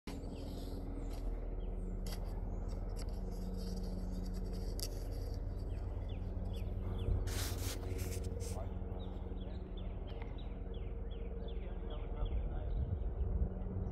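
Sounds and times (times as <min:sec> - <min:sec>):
helicopter rotor beating: 0:00.1 - 0:13.9.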